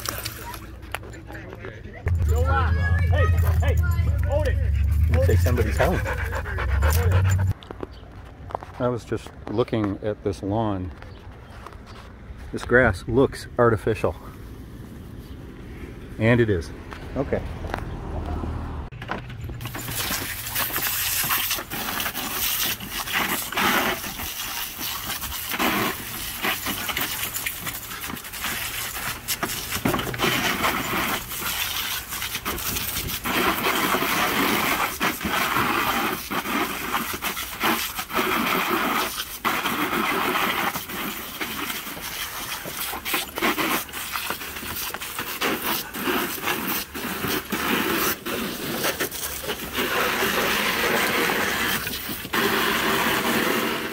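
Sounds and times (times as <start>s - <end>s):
hose spray splashing: 19.6s - 53.9s.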